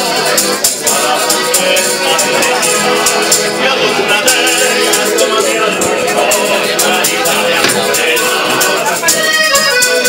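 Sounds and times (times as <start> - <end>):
man singing: 0.8 - 10.0
piano accordion: 2.9 - 10.0
strummed guitar: 4.0 - 9.2.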